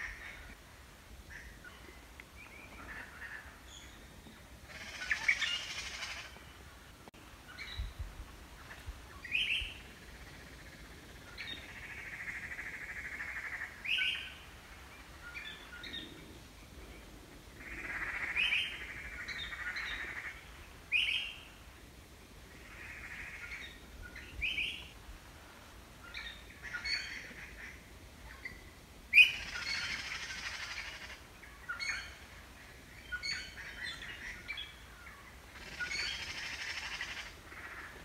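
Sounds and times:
bird trilling calls: 4.7 - 6.4, 35.6 - 37.9
small birds chirping: 26.0 - 38.0.

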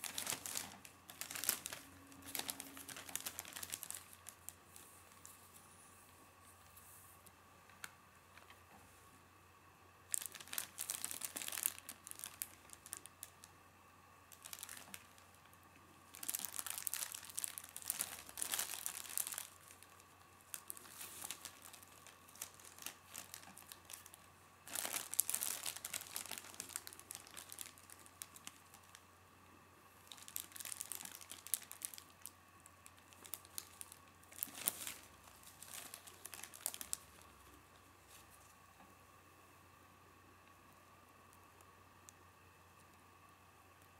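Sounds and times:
plastic bag crinkling: 0.0 - 5.6, 10.1 - 13.5, 14.2 - 29.0, 30.0 - 38.5.

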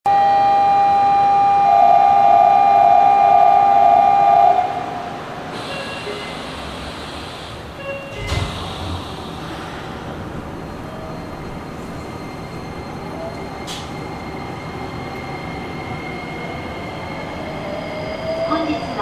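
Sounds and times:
electronic signal tone: 0.1 - 4.7.

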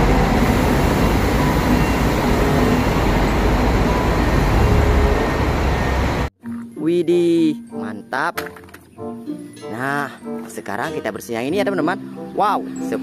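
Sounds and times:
diesel engine rumble: 0.0 - 6.3
road noise: 0.0 - 6.3.

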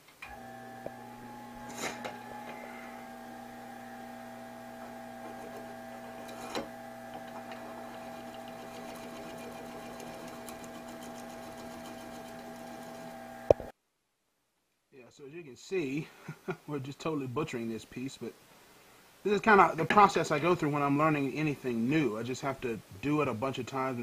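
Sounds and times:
wood lathe motor whining: 0.2 - 13.7
knife scraping spinning wood: 0.4 - 13.5.

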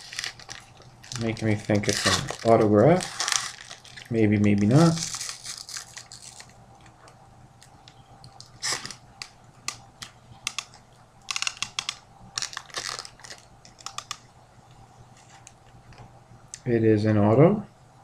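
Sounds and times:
foil wrapper crinkling: 0.0 - 7.0, 7.6 - 14.2.

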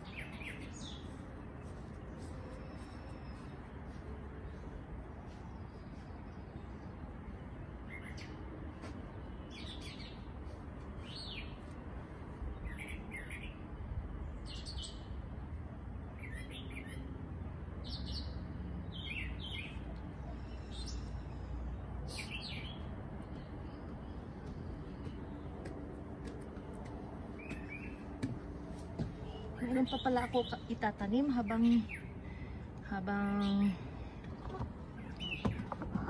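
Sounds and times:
bird chirping: 33.3 - 36.0.

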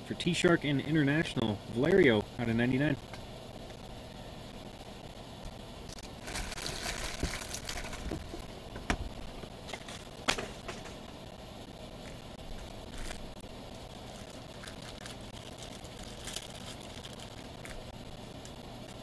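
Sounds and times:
card packaging rustling: 5.9 - 8.5, 9.6 - 11.0, 12.0 - 19.0.

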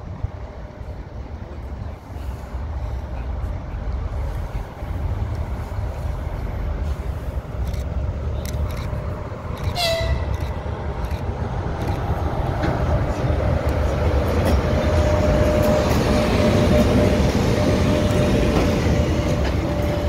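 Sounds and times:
electric locomotive rumbling: 0.0 - 20.0
locomotive horn blast: 9.7 - 10.4.

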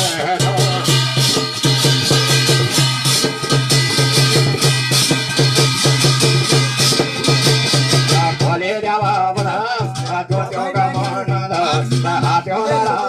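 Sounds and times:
person singing: 0.0 - 1.4, 8.1 - 13.0
fast drum beat: 0.0 - 13.0
held instrumental tones: 0.0 - 13.0.

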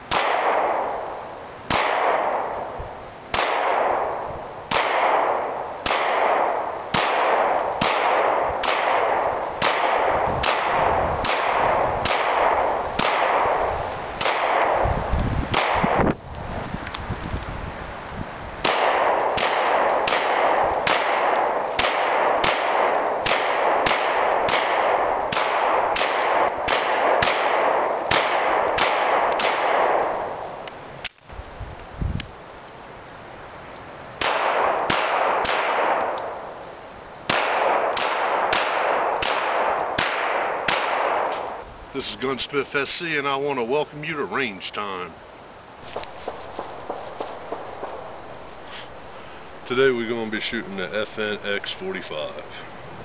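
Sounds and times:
pistol shots echoing: 0.1 - 16.2, 18.6 - 30.5, 34.2 - 36.5, 37.3 - 41.6, 46.3 - 48.3.

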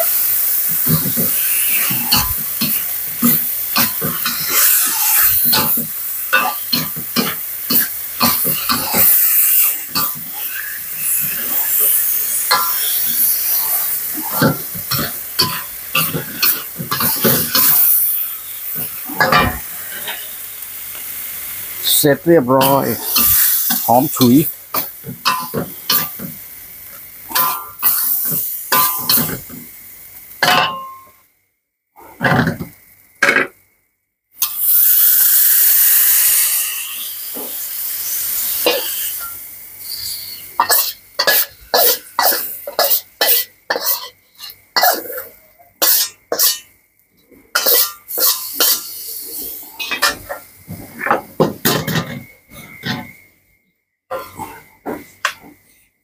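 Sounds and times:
utensils scraping a steel wok: 0.0 - 20.4, 22.6 - 26.3, 27.3 - 29.4, 34.4 - 46.7, 47.5 - 53.1
food sizzling: 0.0 - 31.3, 32.0 - 33.6, 34.4 - 56.0.

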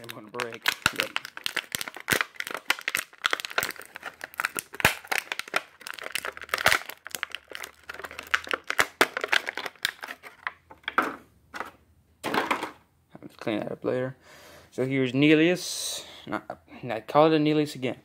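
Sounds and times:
plastic wrapping crinkling: 0.0 - 10.6.

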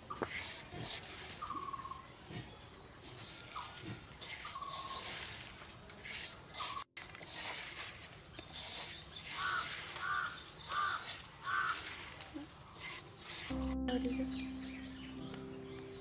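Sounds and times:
hand mixing onions in wok: 0.0 - 15.8
bird calling: 9.1 - 16.0.

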